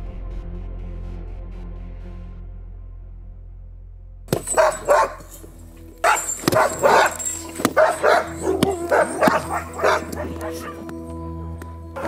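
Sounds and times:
background music: 0.0s - 12.0s
sled dogs barking: 4.4s - 11.0s.

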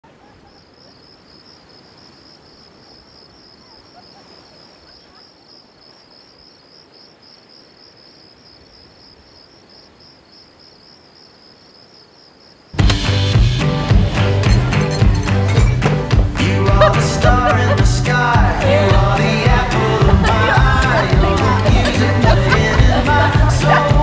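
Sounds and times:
crickets chirping: 0.0s - 12.8s.

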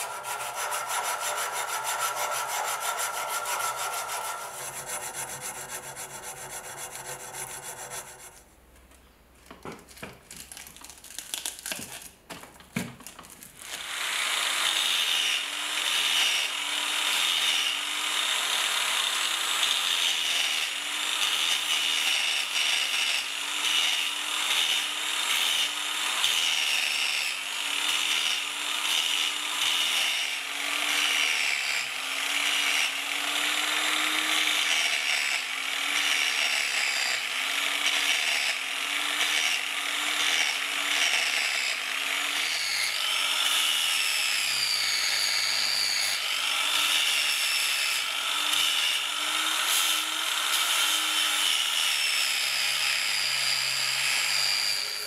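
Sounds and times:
abrasive scratching on metal: 0.0s - 8.5s
angle grinder sanding metal: 0.0s - 8.5s, 13.8s - 55.0s.

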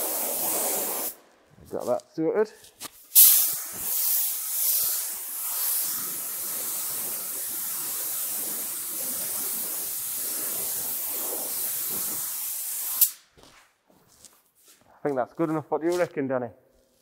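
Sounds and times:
spray gun hissing: 0.0s - 1.2s, 3.0s - 13.2s.

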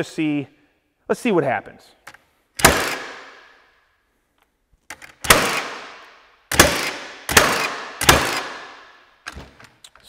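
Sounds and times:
nail gun firing: 2.6s - 3.6s, 4.9s - 9.6s.

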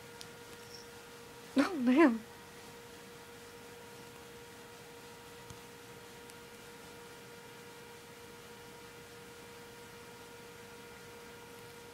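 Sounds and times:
faint steady hum: 0.0s - 11.9s.

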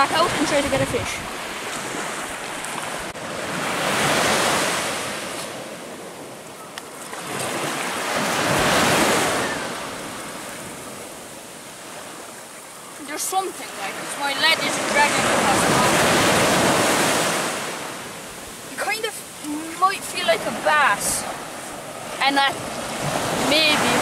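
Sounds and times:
waves washing in: 0.0s - 24.0s
steady hiss of wash: 18.2s - 22.5s.

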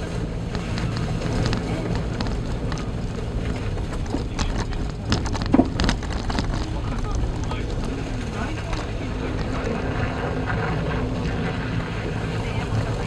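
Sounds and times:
car engine and road drone: 0.0s - 13.0s
tyres and suspension knocking: 0.5s - 9.5s.

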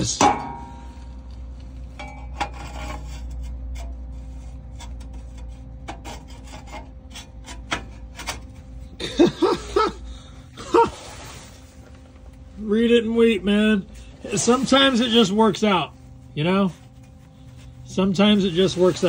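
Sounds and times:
metal pipe rubbing and clicking: 0.1s - 8.8s.

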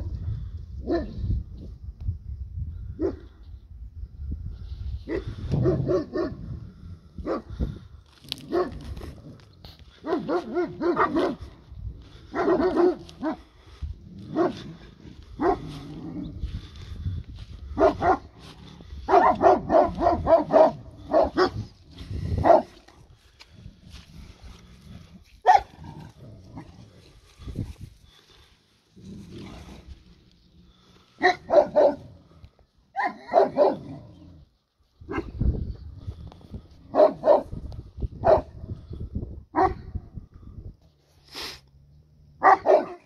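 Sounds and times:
dogs barking: 0.8s - 1.2s, 5.1s - 6.5s, 7.2s - 7.6s, 8.4s - 13.6s, 14.2s - 16.2s, 17.7s - 22.8s, 25.4s - 26.7s, 31.2s - 32.2s, 32.9s - 34.1s, 35.1s - 35.4s, 36.8s - 37.6s, 38.2s - 38.6s, 39.5s - 39.9s, 42.4s - 43.0s.

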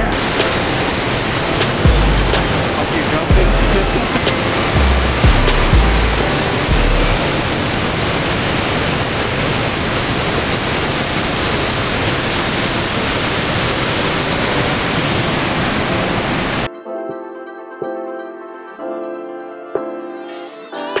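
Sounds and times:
waterfall roaring: 0.0s - 16.7s.

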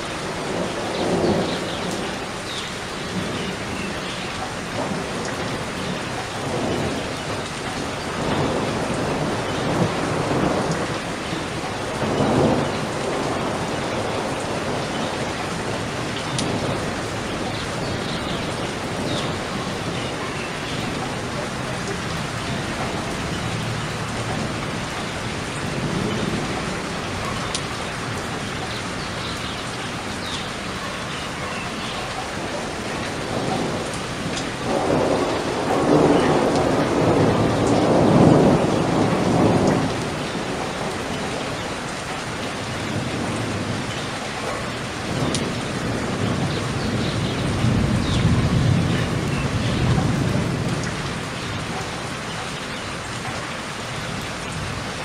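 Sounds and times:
thunder rumbling: 0.0s - 53.2s
steady rain falling: 0.0s - 55.0s.

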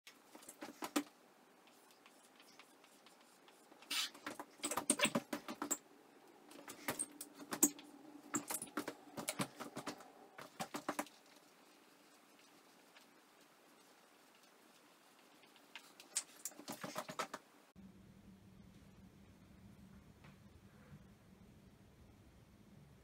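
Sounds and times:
marker squeaking on whiteboard: 1.7s - 5.8s, 15.8s - 17.4s.

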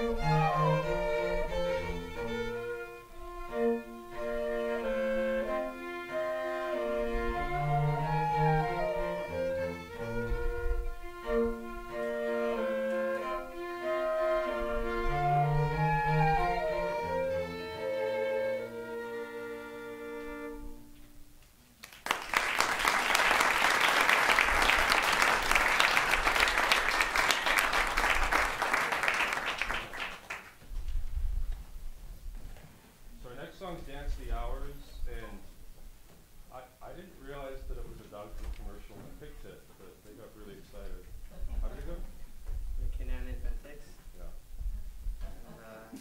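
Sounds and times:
violin and cello playing: 0.0s - 21.1s
audience applauding: 21.8s - 30.6s.

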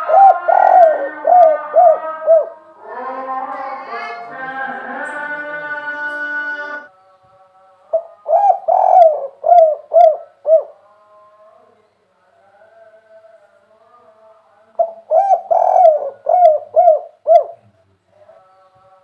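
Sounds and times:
dove cooing: 0.0s - 2.6s, 7.9s - 10.8s, 14.8s - 17.7s.

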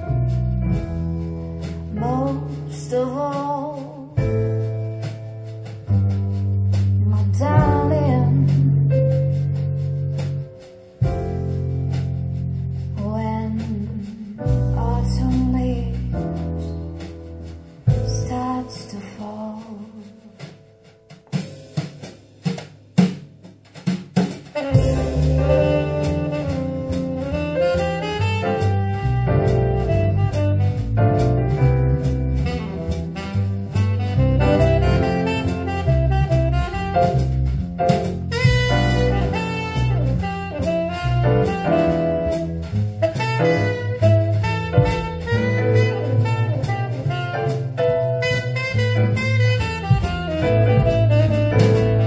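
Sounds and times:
walking bass line: 0.0s - 18.6s, 24.6s - 52.0s
drum kit strikes: 0.0s - 52.0s
saxophone with band: 7.2s - 12.2s, 24.4s - 52.0s.

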